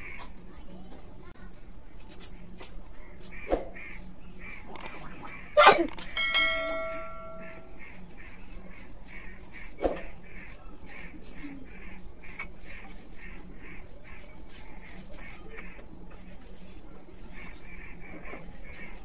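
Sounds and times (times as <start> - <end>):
ringing metal clink: 6.1 - 7.7.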